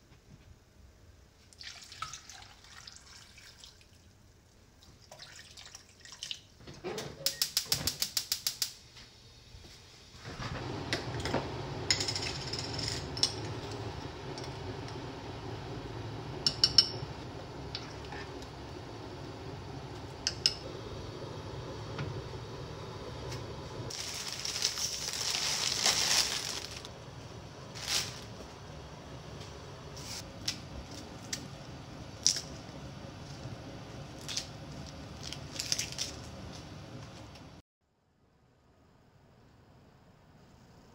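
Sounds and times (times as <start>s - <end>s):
wet lettuce crackling in colander: 23.9s - 26.9s, 34.1s - 36.4s.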